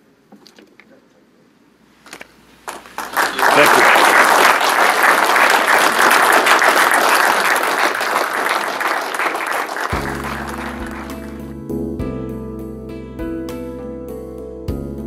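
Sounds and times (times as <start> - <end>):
audience applauding: 2.7 - 11.5
music with held tones: 9.9 - 15.0.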